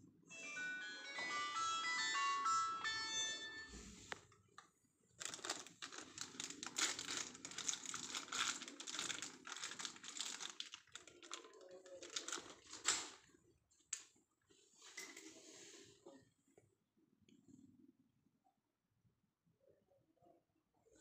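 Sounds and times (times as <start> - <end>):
crinkling and rustling: 3.7 - 15.5.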